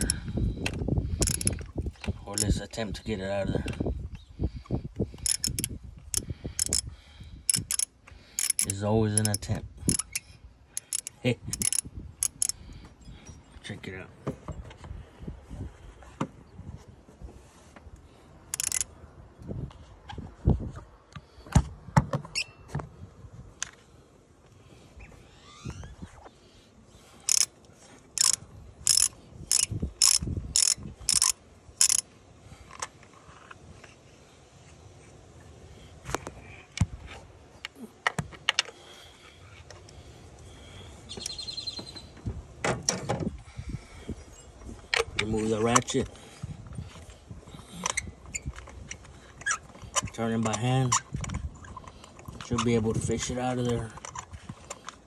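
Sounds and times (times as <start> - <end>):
ratchet metal clicks and knocks: 0.0 - 2.8, 5.1 - 6.9, 7.5 - 12.9, 18.5 - 18.9, 27.3 - 27.5, 28.1 - 32.1
bird chirping: 41.1 - 42.2.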